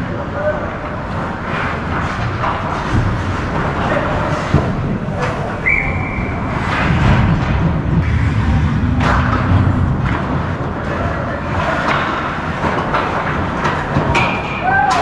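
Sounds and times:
ice rink noise: 0:00.0 - 0:15.0
hockey sticks knocking puck: 0:01.1 - 0:05.5, 0:10.0 - 0:15.0.

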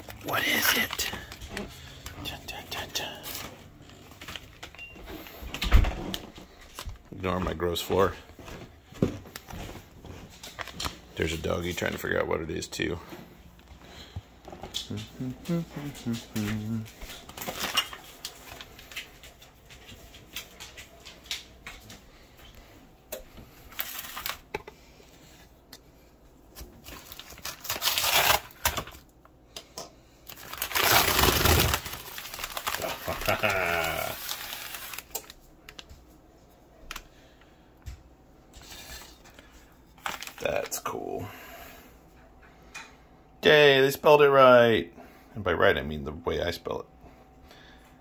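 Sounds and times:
packing paper rustling and tearing: 0:00.0 - 0:04.8, 0:09.4 - 0:11.8, 0:15.8 - 0:21.5, 0:23.6 - 0:24.6, 0:26.5 - 0:29.1, 0:30.2 - 0:35.9, 0:38.6 - 0:41.0
paper crumpling: 0:00.0 - 0:04.8, 0:09.4 - 0:11.4, 0:23.6 - 0:24.6, 0:26.6 - 0:29.0, 0:30.3 - 0:35.9, 0:38.6 - 0:40.9
brief vocal sound: 0:14.9 - 0:16.9.

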